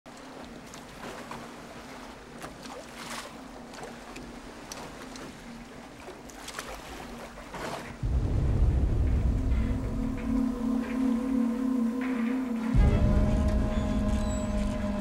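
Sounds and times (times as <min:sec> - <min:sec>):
wind: 0:00.0 - 0:15.0
water moving around a boat: 0:00.1 - 0:15.0
low music drone: 0:08.0 - 0:15.0.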